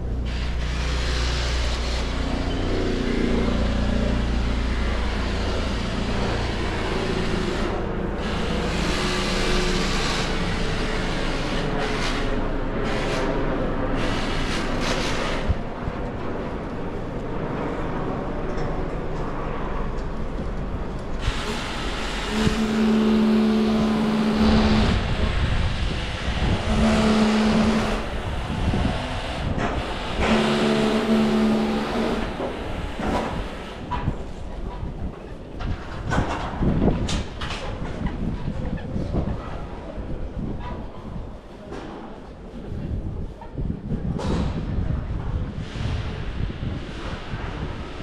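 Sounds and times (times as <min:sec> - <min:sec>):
city traffic rumbling: 0:00.0 - 0:48.0
low horn blasts: 0:21.2 - 0:29.0, 0:30.1 - 0:32.6.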